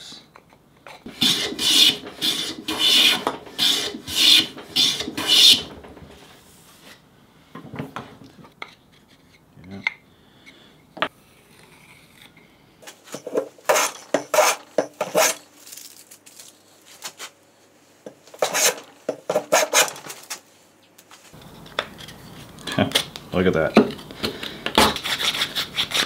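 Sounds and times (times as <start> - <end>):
bench plane shaving wood: 1.1 - 5.7, 13.7 - 15.4.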